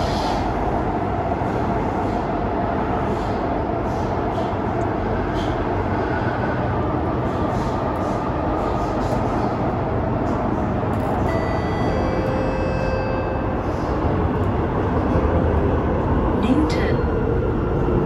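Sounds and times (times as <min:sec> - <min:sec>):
train wheels rumbling on rail: 0:00.0 - 0:18.0.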